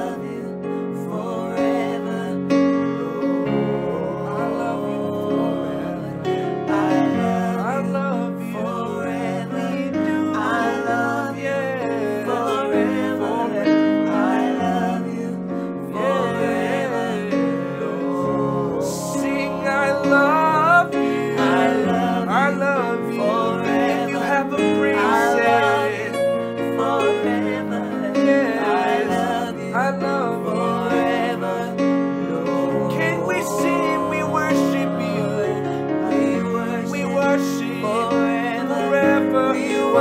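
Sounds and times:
people singing together: 0.0 - 40.0
instrumental accompaniment: 9.1 - 40.0.

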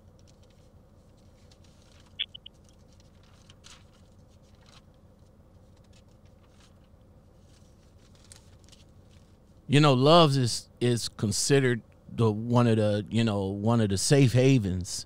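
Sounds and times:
high chirp-like blip: 2.2 - 2.5.

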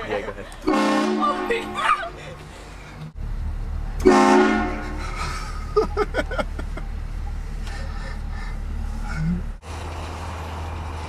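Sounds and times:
low engine rumble: 0.0 - 11.0
train horn blast: 0.7 - 1.8, 4.0 - 5.1.

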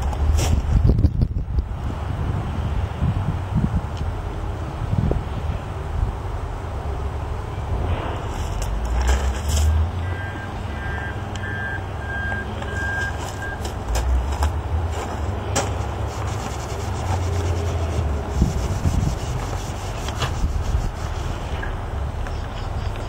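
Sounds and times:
low steady rumble: 0.0 - 23.0
short even beeps: 10.0 - 13.7
cloth pad rubbing plastic lens: 15.8 - 21.6.

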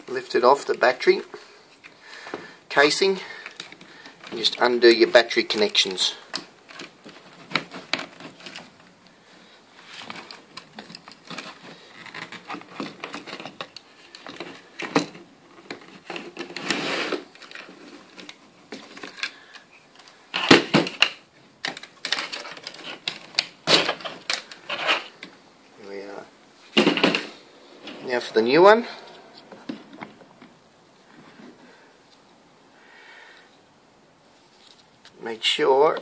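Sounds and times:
small clicks and plastic rustles: 1.4 - 25.4, 34.5 - 35.2.

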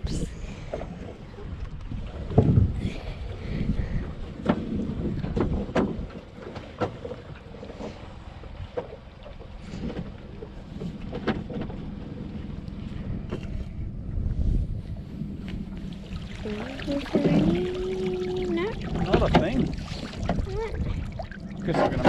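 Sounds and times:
low rumble: 0.0 - 6.4, 9.6 - 22.0
wind buffeting microphone: 0.0 - 6.8, 10.9 - 22.0.

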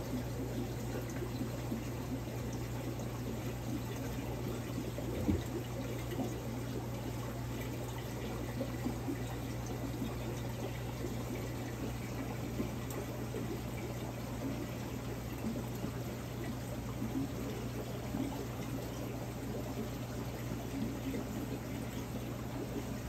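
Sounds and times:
aquarium water running and trickling: 0.0 - 23.0.

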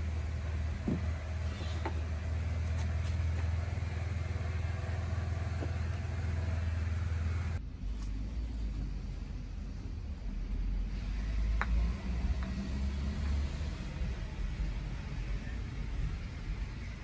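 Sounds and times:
low engine-like rumble: 0.0 - 17.0.

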